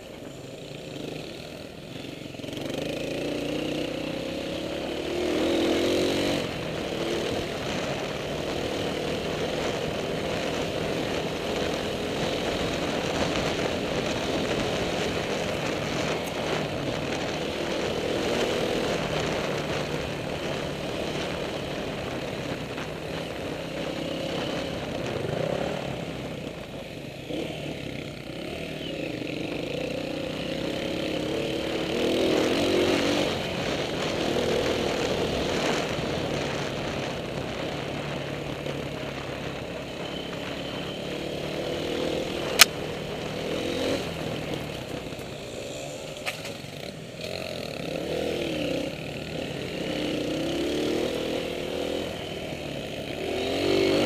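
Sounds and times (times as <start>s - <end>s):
dirt bike engine revving: 2.4s - 7.6s, 53.0s - 54.0s.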